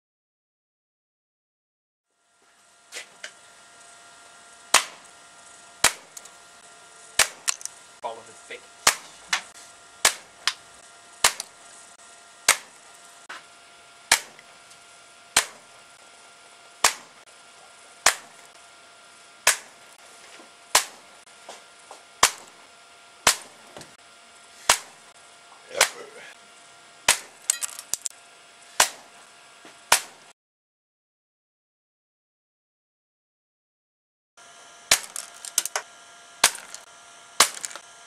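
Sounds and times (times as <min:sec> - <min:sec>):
air pistol shots: 0:04.7 - 0:05.0, 0:05.8 - 0:06.2, 0:07.2 - 0:07.7, 0:08.8 - 0:10.3, 0:11.2 - 0:11.5, 0:12.5 - 0:12.7, 0:15.4 - 0:15.6, 0:16.8 - 0:17.1, 0:22.2 - 0:22.5, 0:34.9 - 0:35.8, 0:36.4 - 0:36.8, 0:37.4 - 0:37.8.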